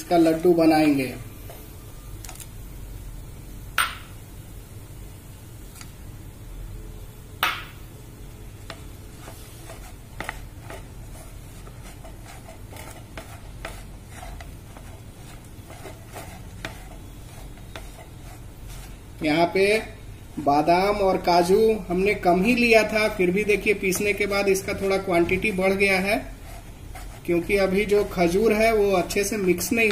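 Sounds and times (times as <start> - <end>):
wooden spatula scraping in a pan: 8.6 - 21.0, 22.3 - 29.9.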